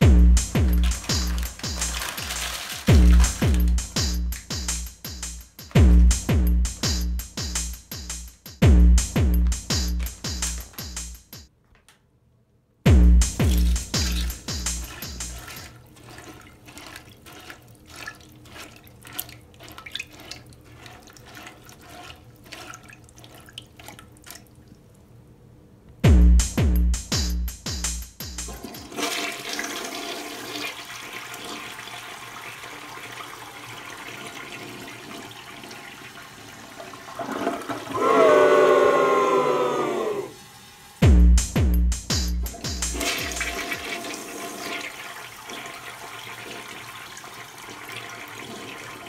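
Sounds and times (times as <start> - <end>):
loud bass beats: 0.0 - 2.1, 2.9 - 11.4, 12.9 - 15.4, 26.0 - 28.6, 41.0 - 43.6
toilet flushing: 0.0 - 4.7, 13.5 - 24.7, 28.5 - 41.0, 42.5 - 49.0
soft electronic music: 0.0 - 11.5, 12.9 - 15.6, 41.1 - 44.0
toilet bowl gurgling: 0.6 - 4.0, 13.5 - 24.7, 28.6 - 40.4, 42.9 - 49.0.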